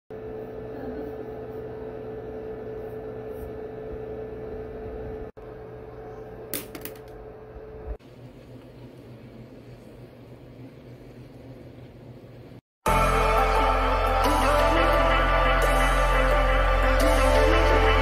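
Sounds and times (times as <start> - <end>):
mechanical hum with steady tone: 0.1 - 12.6.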